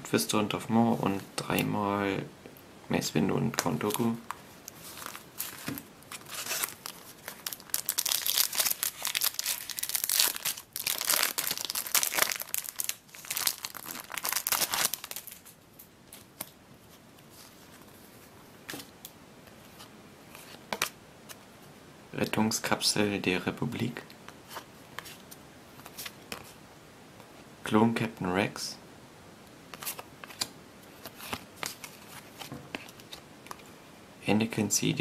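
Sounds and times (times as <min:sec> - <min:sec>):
foil wrapper tearing and crinkling: 0:04.9 - 0:15.6.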